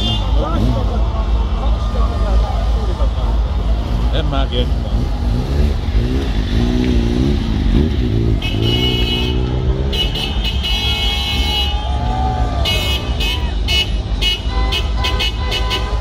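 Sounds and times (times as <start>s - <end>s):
car horns honking: 0.0s - 2.4s, 6.1s - 16.0s
traffic engines rumbling: 0.0s - 16.0s.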